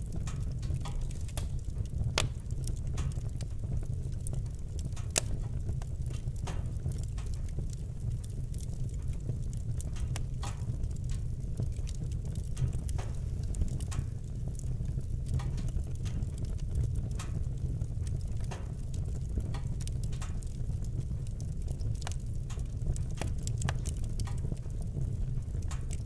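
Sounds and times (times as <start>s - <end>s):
fire crackling and popping: 0.0s - 26.0s
low rumble of fire: 0.0s - 26.0s.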